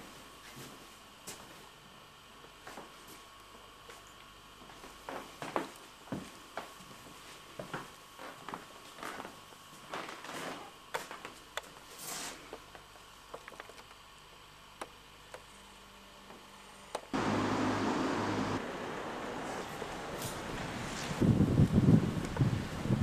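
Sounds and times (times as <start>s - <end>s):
loud steady outdoor rush: 17.2s - 20.6s
low hum: 17.2s - 22.8s.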